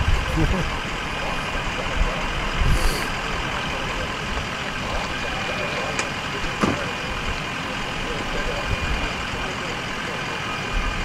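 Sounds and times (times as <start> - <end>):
street noise: 0.0 - 11.0
truck engine idling: 0.0 - 11.0
short hiss: 2.6 - 3.2.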